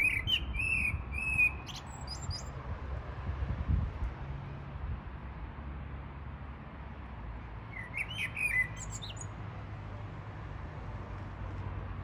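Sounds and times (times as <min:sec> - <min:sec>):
songbird chirping and whistling: 0:00.0 - 0:02.5, 0:07.8 - 0:09.3.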